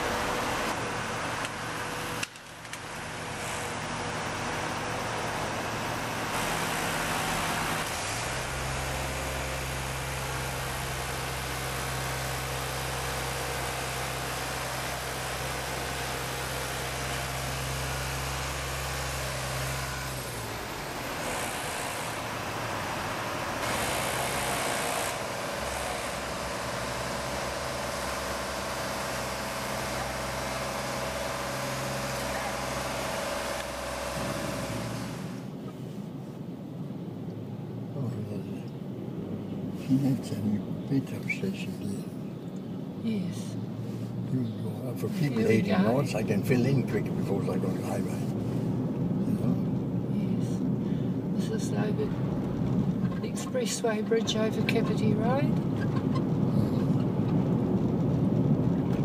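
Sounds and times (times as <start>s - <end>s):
boom lift engine running: 0.0s - 35.6s.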